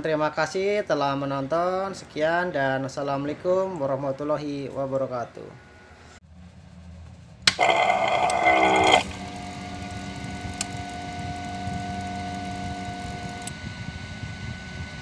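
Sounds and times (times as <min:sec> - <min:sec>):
small electric water pump humming: 0:07.5 - 0:15.0.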